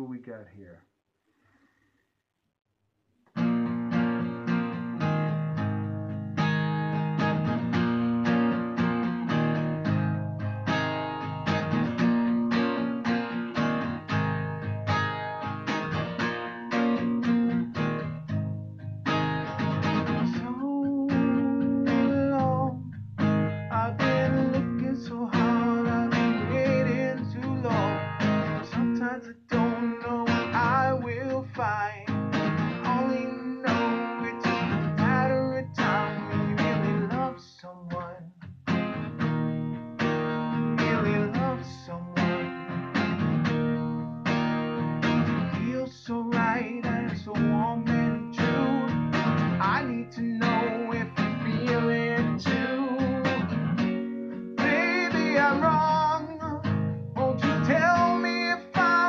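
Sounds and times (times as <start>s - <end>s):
acoustic guitar strumming: 3.3s - 59.0s
man singing: 20.2s - 23.0s, 23.7s - 38.3s, 40.8s - 42.4s, 45.5s - 53.6s, 54.6s - 59.0s.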